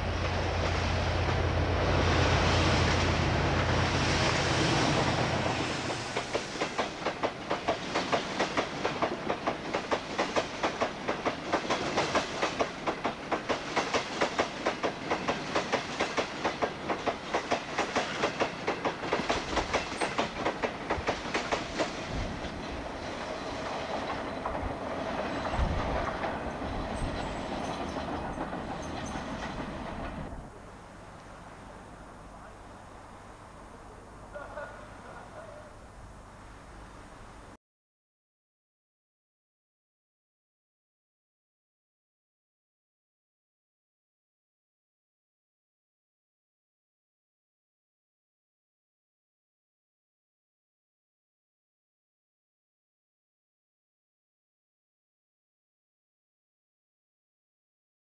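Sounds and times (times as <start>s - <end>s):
diesel locomotive engine: 0.0s - 35.8s
train wheels clacking over rail joints: 3.6s - 30.3s.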